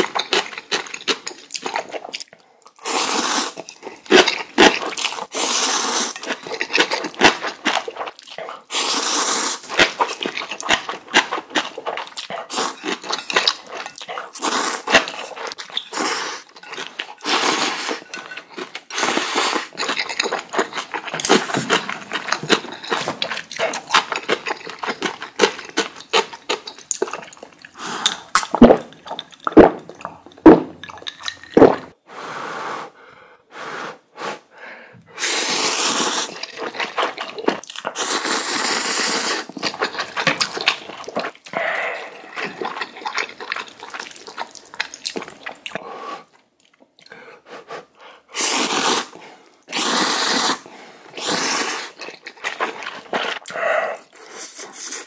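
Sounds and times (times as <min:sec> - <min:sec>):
wet chewing and smacking: 0:00.0 - 0:02.8, 0:06.1 - 0:08.7, 0:09.6 - 0:32.0, 0:36.3 - 0:38.6, 0:39.4 - 0:47.2, 0:51.0 - 0:54.7
noodles slurped: 0:00.0 - 0:30.2, 0:35.2 - 0:46.4, 0:48.3 - 0:55.0.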